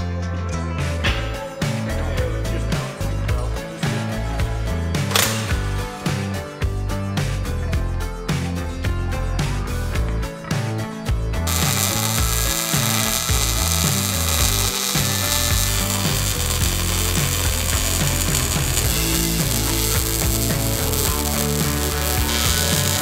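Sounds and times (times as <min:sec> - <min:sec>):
background music: 0:00.0 - 0:23.0
welder arc crackling: 0:11.5 - 0:23.0.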